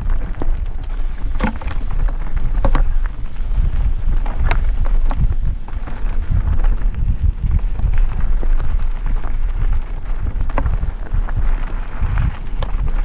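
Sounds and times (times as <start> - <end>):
bike rattling: 0.0 - 13.0
bike tyres crunching on gravel: 0.0 - 13.0
clicks and knocks over stones: 0.0 - 13.0
wind rumble on microphone: 0.0 - 13.0.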